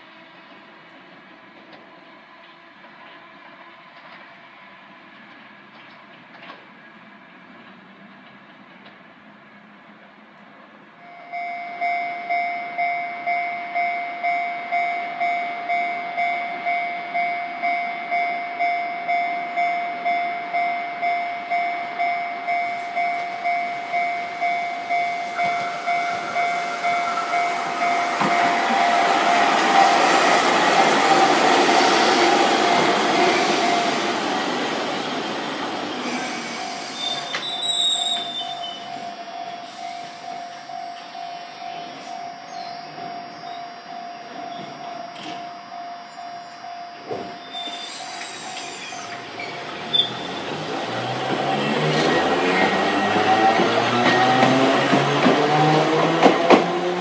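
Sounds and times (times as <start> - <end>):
electric train running: 21.5 - 57.0
high wheel squeal: 24.4 - 54.9.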